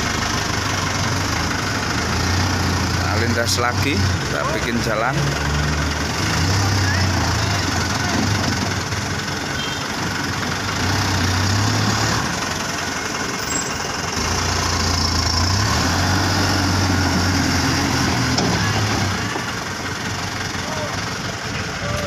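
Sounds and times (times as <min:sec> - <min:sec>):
truck diesel engine pulling: 0:00.0 - 0:22.0.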